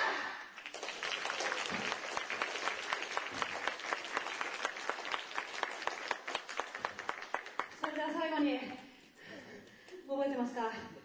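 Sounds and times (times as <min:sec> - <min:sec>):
audience applauding: 0:00.1 - 0:08.2.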